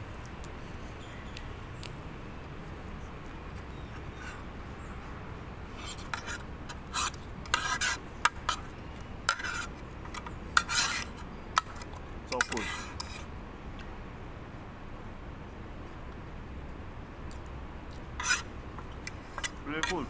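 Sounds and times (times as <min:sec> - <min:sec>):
low background noise: 0:00.0 - 0:20.0
cutlery scraping on a plate: 0:05.8 - 0:08.6, 0:09.3 - 0:11.8, 0:12.4 - 0:13.3, 0:18.2 - 0:18.5, 0:19.1 - 0:20.0.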